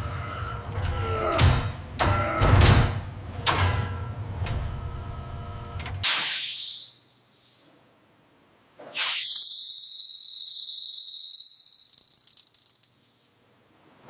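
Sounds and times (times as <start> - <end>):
hiss of grinding sparks: 9.0 - 13.2.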